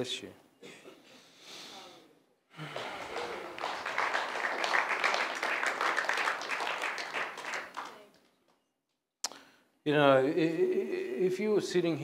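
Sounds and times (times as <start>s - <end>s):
crowd applauding: 2.6s - 8.3s.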